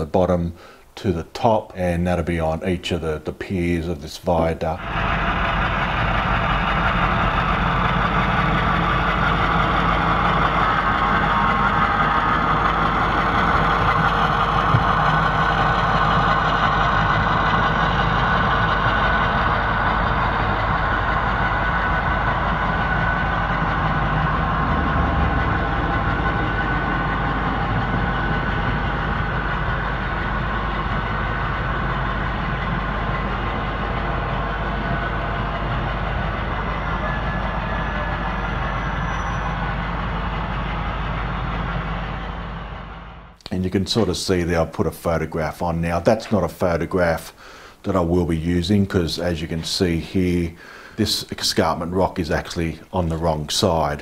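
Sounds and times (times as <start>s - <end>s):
model locomotive engine sound: 0.0s - 54.0s
model wagons rolling on track: 4.8s - 21.7s.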